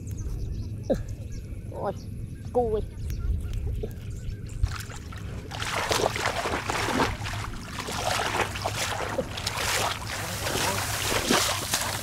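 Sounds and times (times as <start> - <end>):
wading through muddy water: 3.7 - 12.0.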